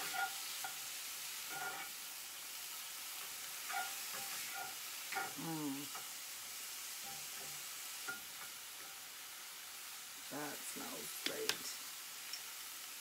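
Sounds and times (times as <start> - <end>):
spatula scraping pan: 0.0 - 2.0, 3.2 - 6.1
vegetables sizzling in a skillet: 0.0 - 13.0.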